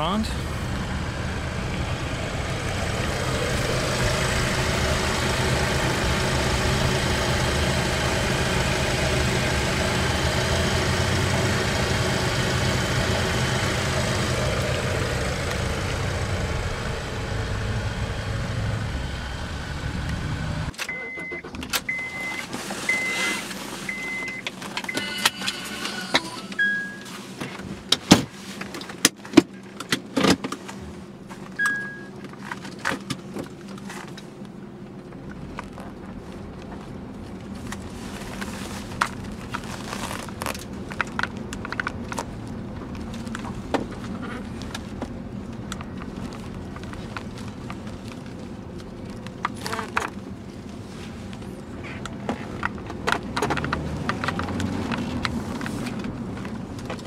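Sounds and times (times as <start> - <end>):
car engine running: 0.0 - 57.0
short beep: 20.8 - 27.1, 31.6 - 32.1.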